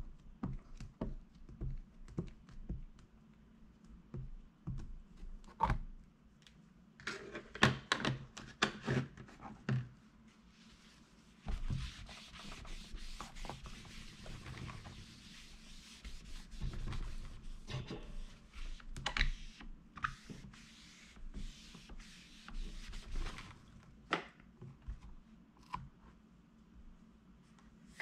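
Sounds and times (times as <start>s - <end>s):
steady rubbing: 10.5s - 23.5s.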